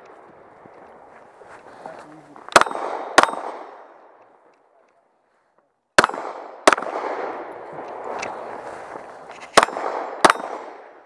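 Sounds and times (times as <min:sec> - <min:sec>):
pistol shots echoing: 0:02.5 - 0:04.3, 0:06.0 - 0:08.1, 0:09.5 - 0:11.0.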